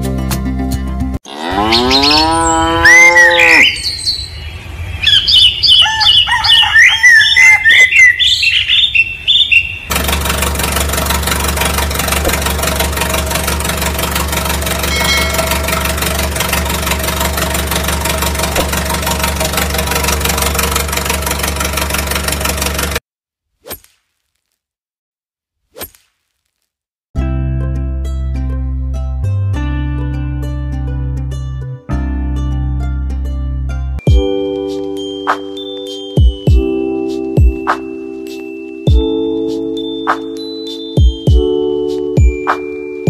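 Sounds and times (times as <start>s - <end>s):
cow mooing: 1.2s - 3.8s
birds chirping: 1.5s - 9.9s
tractor engine running: 9.9s - 23.0s.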